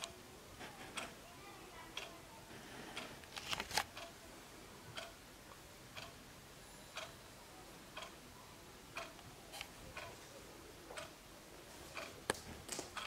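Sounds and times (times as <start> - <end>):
wall clock ticking: 0.0 - 2.3, 2.9 - 3.3, 3.9 - 4.3, 4.9 - 7.3, 7.9 - 10.2, 10.9 - 13.0.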